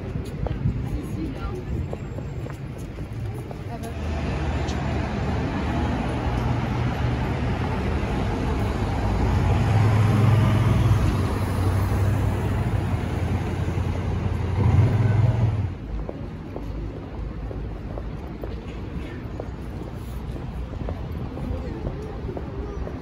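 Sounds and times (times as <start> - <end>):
cars driving past: 3.8 - 20.5.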